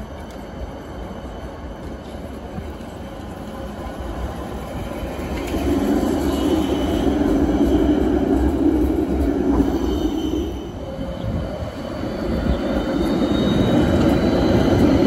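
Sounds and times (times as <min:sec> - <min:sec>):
tram passing by: 0:00.0 - 0:15.0
high wheel squeal: 0:09.8 - 0:15.0.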